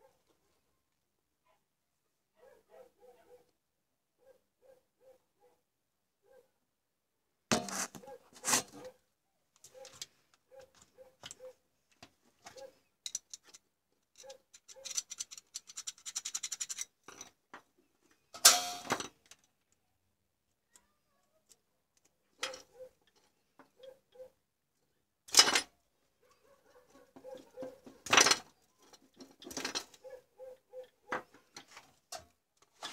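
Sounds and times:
small clicks and taps of handling: 9.5s - 18.2s, 20.4s - 23.8s.

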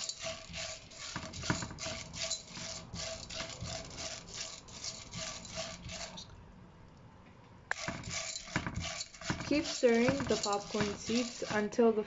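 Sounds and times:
spatula scraping a pan: 0.0s - 6.3s, 7.7s - 11.8s.

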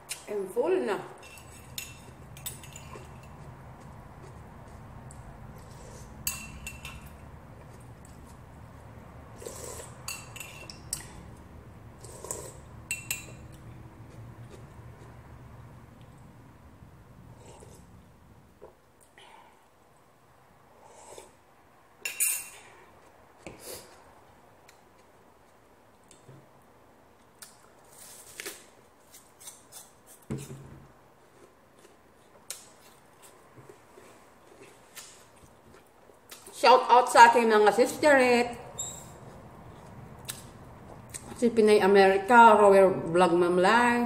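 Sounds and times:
metal spoon clinking on mug: 12.9s - 13.4s
slurping sips: 20.8s - 21.4s.

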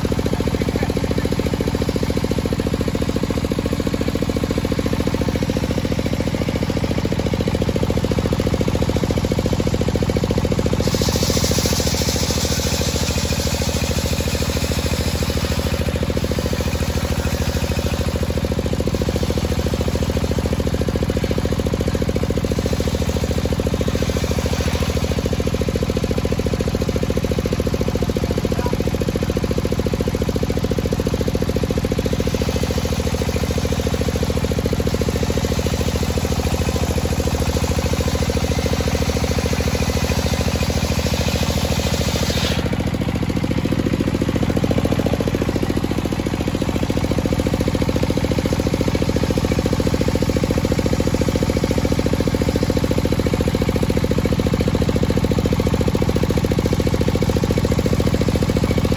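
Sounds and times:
saw drive droning: 0.0s - 27.4s, 31.2s - 52.4s
saw blade hissing through wood: 10.7s - 18.0s, 40.2s - 42.8s.

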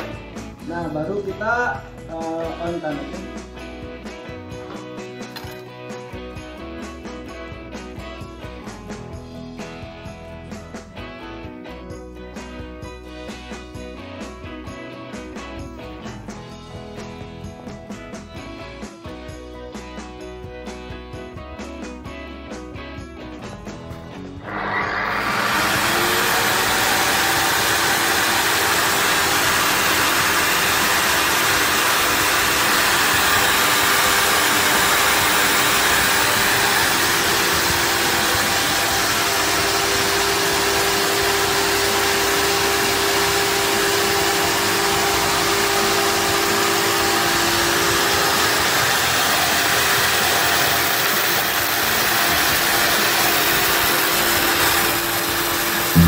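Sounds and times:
table saw motor running: 24.4s - 56.0s.

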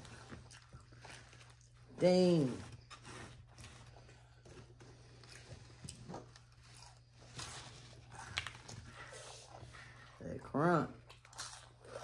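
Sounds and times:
crunching of food being chewed: 3.9s - 9.2s, 11.0s - 12.0s.

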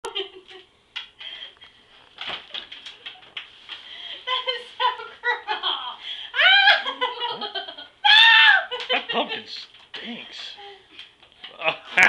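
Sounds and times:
kids laughing and giggling: 4.3s - 9.5s.

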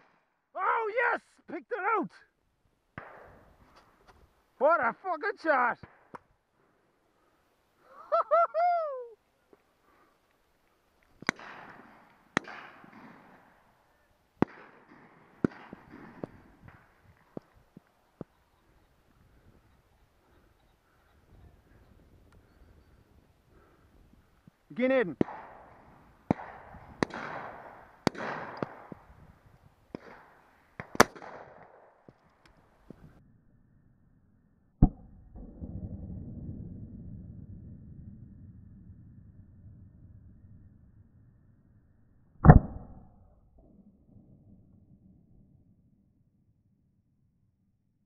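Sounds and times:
shotgun shots: 11.2s - 13.4s, 14.4s - 16.8s, 25.2s - 29.1s, 29.9s - 31.9s.

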